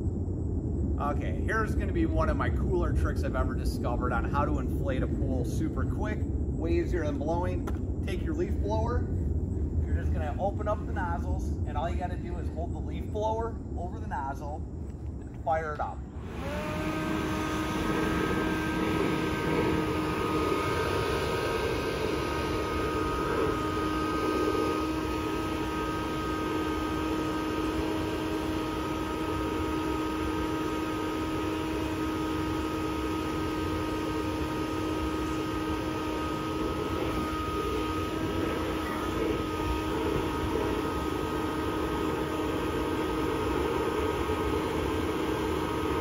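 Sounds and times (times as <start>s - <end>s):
rush of air: 16.0s - 28.6s
leaf blower whining: 16.0s - 46.0s.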